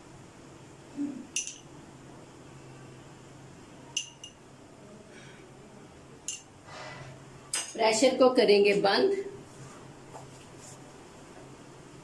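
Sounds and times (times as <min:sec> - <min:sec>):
spoon clinking against glass bowl: 0:01.3 - 0:01.7, 0:04.0 - 0:04.4, 0:06.3 - 0:06.5.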